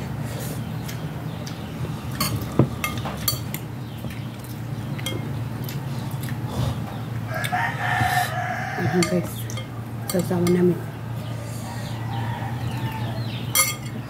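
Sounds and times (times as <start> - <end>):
steady low hum: 0.0 - 14.0
spoons clinking on glass bowl: 13.5 - 14.0.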